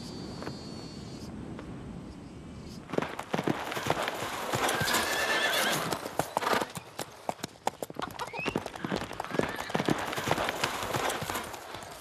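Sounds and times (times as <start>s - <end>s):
horse hooves clattering: 2.9s - 12.0s
horse whinnying: 4.6s - 5.9s.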